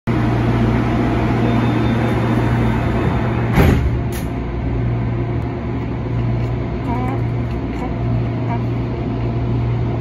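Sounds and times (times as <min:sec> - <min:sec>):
train car humming: 0:00.1 - 0:10.0
thump: 0:03.5 - 0:04.3.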